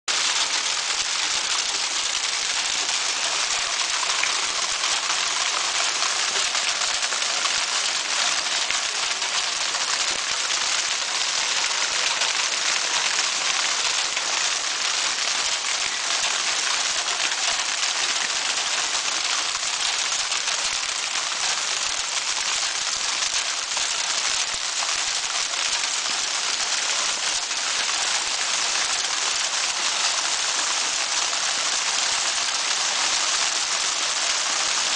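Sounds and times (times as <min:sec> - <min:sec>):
hailstones falling on wooden deck: 0:00.1 - 0:13.7.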